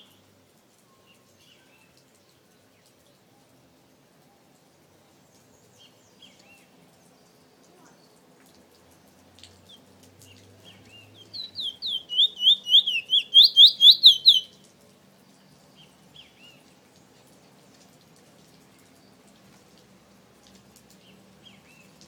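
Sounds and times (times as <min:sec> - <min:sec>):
finch whistled song: 0:10.7 - 0:14.5
soft bird call notes: 0:10.7 - 0:14.6.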